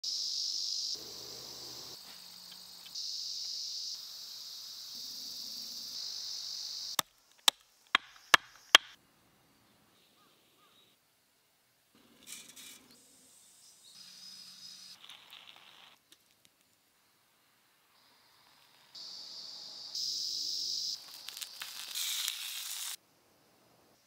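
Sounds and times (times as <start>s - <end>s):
high-pitched insect chorus: 0.0s - 7.0s, 17.9s - 23.0s
blade knocking into log: 7.4s - 9.0s.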